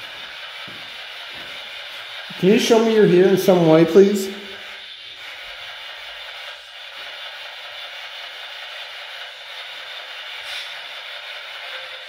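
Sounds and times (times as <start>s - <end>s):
radio static hiss: 2.3s - 6.6s.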